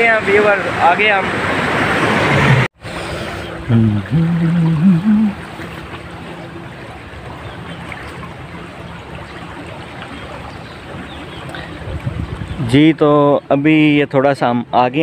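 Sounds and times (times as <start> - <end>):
canal water rushing: 0.0 - 13.2
person humming: 3.6 - 5.5.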